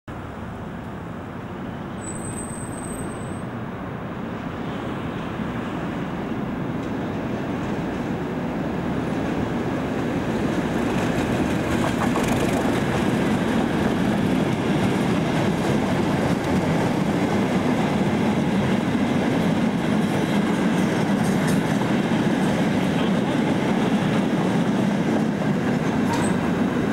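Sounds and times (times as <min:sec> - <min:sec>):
freight train rolling past: 0:00.1 - 0:26.9
train wheel clicks: 0:10.9 - 0:13.2.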